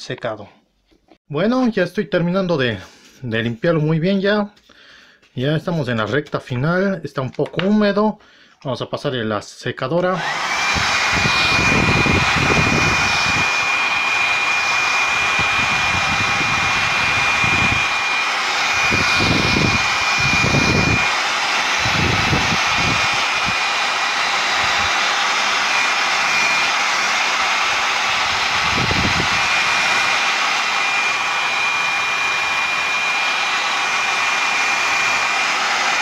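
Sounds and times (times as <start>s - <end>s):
hair dryer running: 10.1s - 36.0s.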